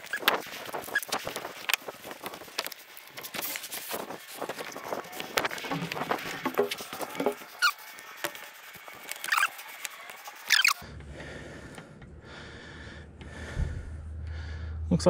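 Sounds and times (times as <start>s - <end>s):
cables rustling: 0.0s - 10.8s
low hum: 4.1s - 15.0s
bird chirping: 10.5s - 10.8s.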